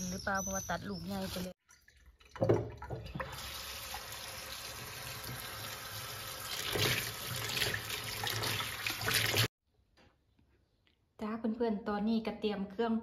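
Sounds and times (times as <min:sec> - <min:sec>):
water splashing: 0:06.4 - 0:09.5.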